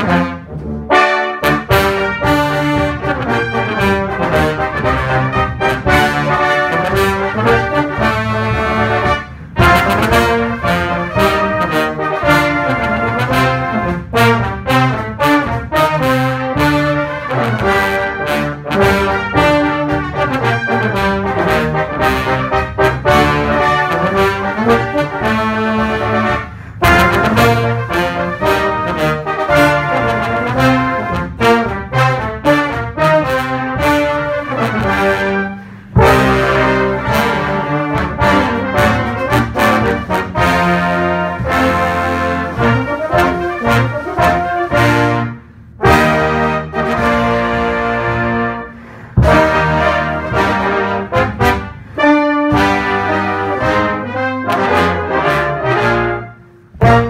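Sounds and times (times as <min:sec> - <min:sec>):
military brass band playing: 0:00.0 - 0:57.0.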